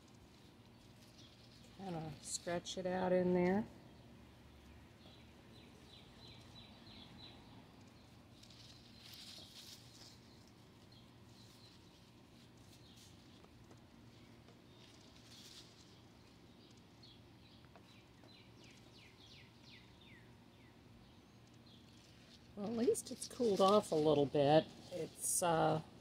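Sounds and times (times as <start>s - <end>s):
herbs rustling against mesh: 0.0s - 3.7s, 4.6s - 19.7s, 21.1s - 26.0s
bird chirping: 3.9s - 12.1s, 14.1s - 23.6s.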